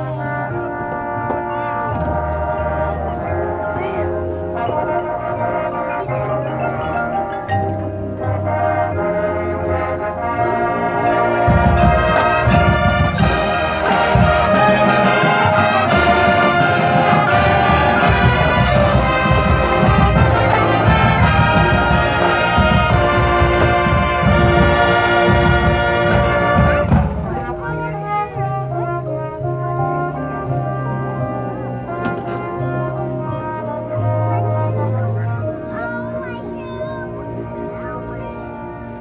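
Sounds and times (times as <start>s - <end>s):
marching band playing: 0.0s - 39.0s.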